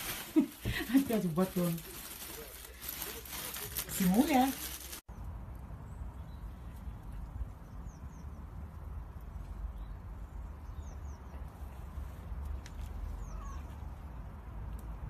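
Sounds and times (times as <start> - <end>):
small birds chirping: 1.8 - 14.3.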